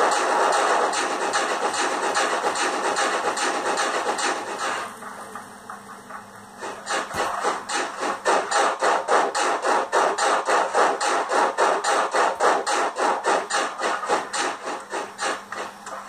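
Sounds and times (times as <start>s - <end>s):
model train steam chuffs: 0.0s - 5.2s, 6.1s - 16.0s
faint steady hum: 0.0s - 16.0s.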